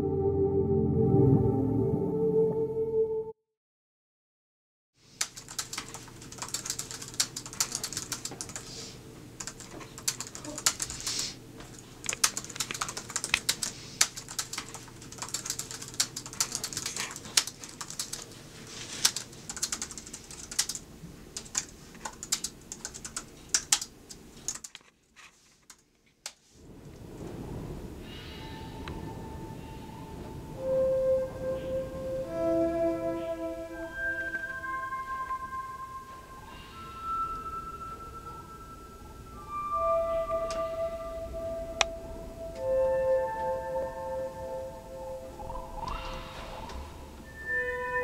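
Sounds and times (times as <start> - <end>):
laptop keyboard typing: 5.2 - 8.8, 9.4 - 11.1, 11.7 - 18.4, 19.0 - 20.8, 21.4 - 24.9.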